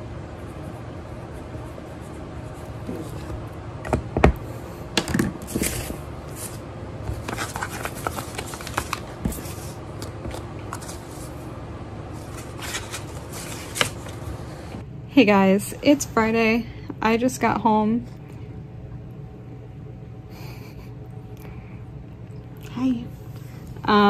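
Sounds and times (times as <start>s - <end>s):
paper rustling and sliding: 5.4s - 11.5s, 12.1s - 14.6s.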